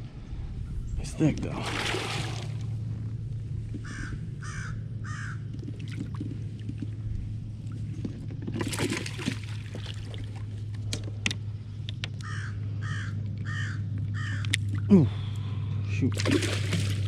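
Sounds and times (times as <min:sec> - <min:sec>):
fish splashing: 0:01.6 - 0:02.7, 0:08.4 - 0:10.6, 0:16.1 - 0:17.0
crow cawing: 0:03.8 - 0:05.4, 0:12.2 - 0:14.6.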